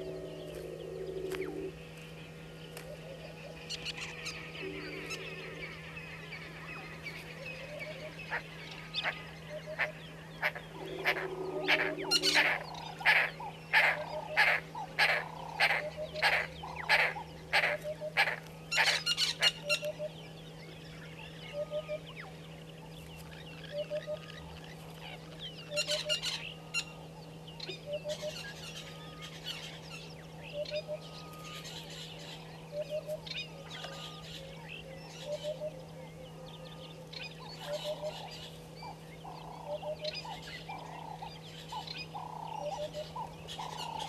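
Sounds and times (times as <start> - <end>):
geese honking: 7.6 - 19.9.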